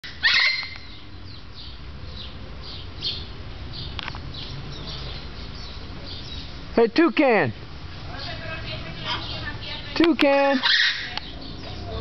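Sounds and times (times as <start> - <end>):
macaw squawking: 0.0 - 1.0, 9.1 - 11.3
small birds chirping: 0.0 - 12.0.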